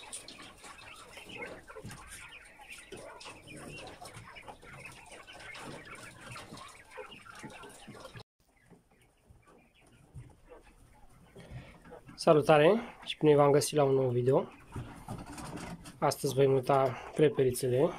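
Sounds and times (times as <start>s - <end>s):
quail calling and chirping: 0.0s - 17.9s.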